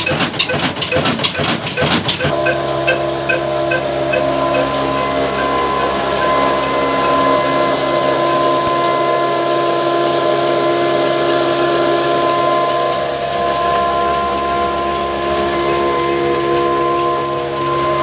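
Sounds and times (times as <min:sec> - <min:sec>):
flour mill machine hum: 0:00.0 - 0:18.0
high-pitched whine: 0:00.0 - 0:18.0.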